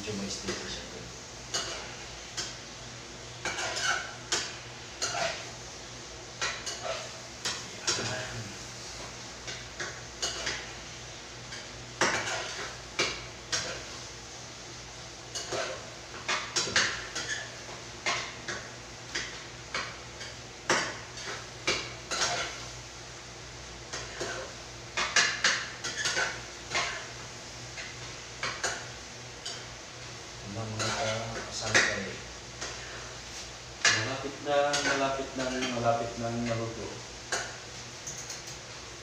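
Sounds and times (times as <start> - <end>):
metal utensil scraping frying pan: 3.4 - 4.2, 5.0 - 5.5, 12.0 - 12.8, 30.7 - 31.4.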